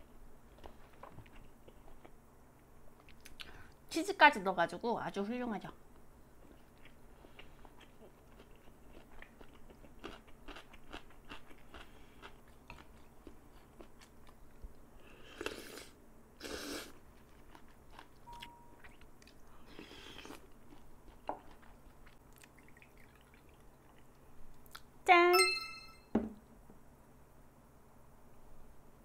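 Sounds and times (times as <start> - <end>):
close chewing with wet clicks: 6.4 - 14.8, 17.2 - 24.9.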